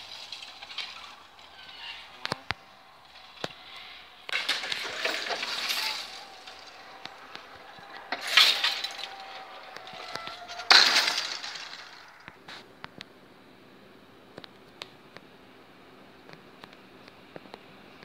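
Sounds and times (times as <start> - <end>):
metal lattice skirts rattling: 0.0 - 12.3
barrier drive whine: 0.0 - 14.3.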